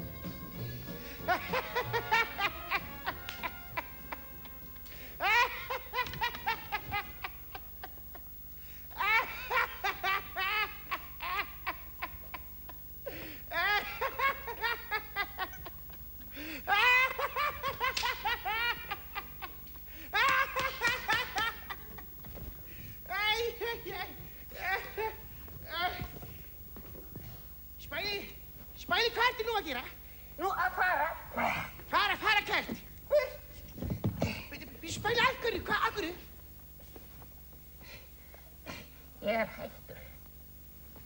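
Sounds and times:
man laughing: 1.1 - 8.3, 8.9 - 22.5, 23.1 - 26.2, 38.8 - 40.1.

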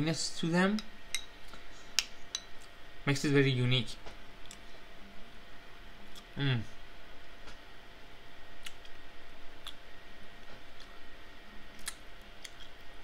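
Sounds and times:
faint hum: 0.0 - 13.0
chewing smacks: 11.8 - 12.8.

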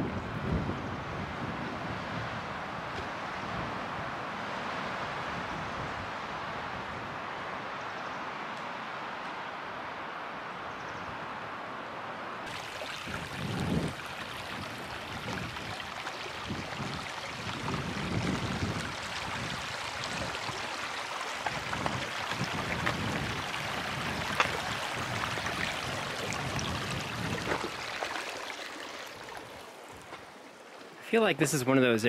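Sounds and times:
creek water running over rocks: 12.4 - 31.9
footsteps on gravelly trail: 20.2 - 26.0.

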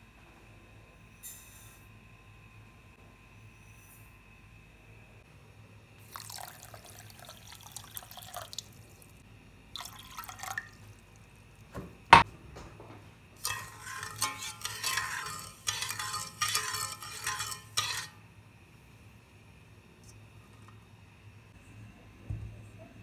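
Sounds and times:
water pouring into a pot: 6.0 - 10.9, 13.4 - 18.1
metal spoon scraping a pot: 13.4 - 18.2.

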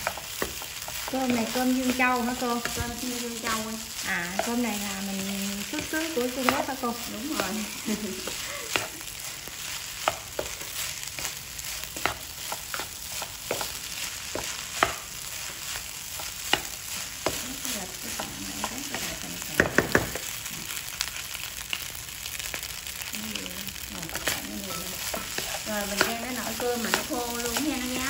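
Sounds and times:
rice sizzling in a pan: 0.0 - 28.0
spatula scraping a pan: 7.3 - 19.2, 24.2 - 28.0.

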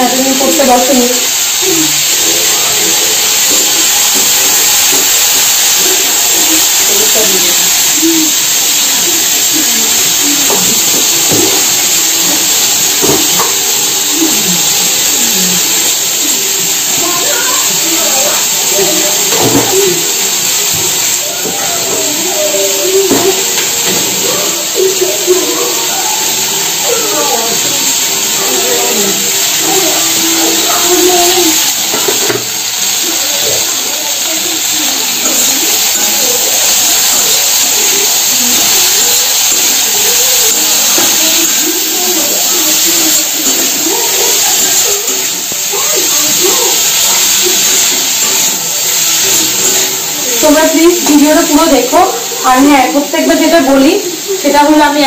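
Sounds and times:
faint background voices or tv: 0.0 - 55.0
potatoes sizzling in oil: 0.0 - 55.0
spatula scraping and knocking pan: 10.4 - 11.8, 12.9 - 13.8, 19.2 - 22.3, 23.0 - 24.5, 30.5 - 32.6.

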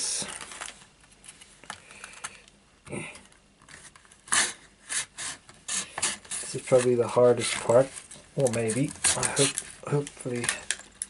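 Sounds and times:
plastic crackling: 0.2 - 2.6, 6.0 - 11.0
knife scraping plastic: 3.6 - 10.8.

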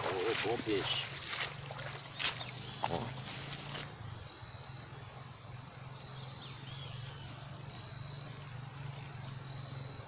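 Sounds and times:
crickets chirring: 0.0 - 10.0.

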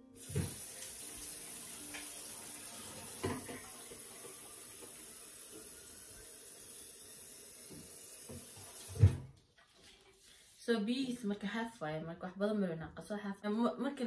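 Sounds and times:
tap running into sink: 0.2 - 6.0, 7.6 - 9.3.

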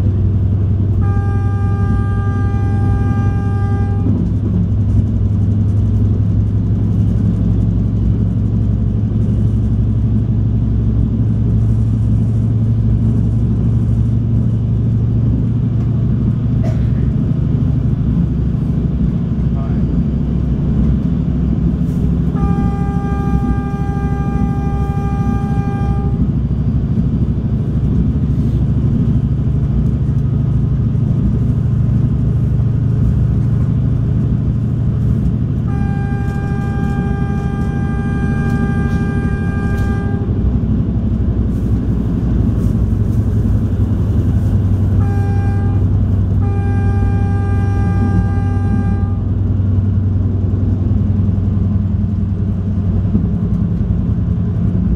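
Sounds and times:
train engine drone: 0.0 - 54.9
train horn blasts: 0.9 - 4.5, 21.7 - 27.2, 33.4 - 49.8.

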